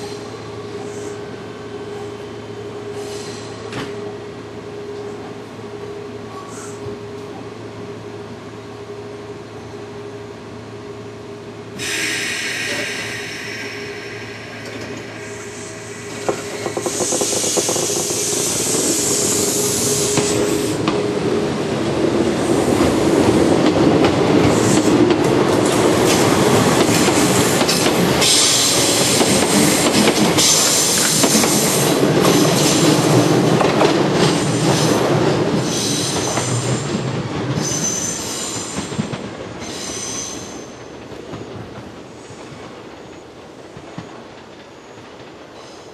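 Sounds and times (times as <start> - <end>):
train motors and wheels running: 0.0 - 45.9
air hiss: 11.8 - 20.8.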